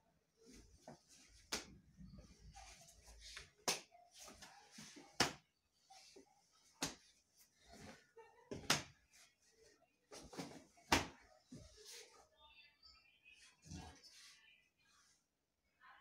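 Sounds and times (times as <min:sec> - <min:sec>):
clothing rustling: 0:00.2 - 0:12.3
sharp slaps and snaps of strikes: 0:03.6 - 0:03.9.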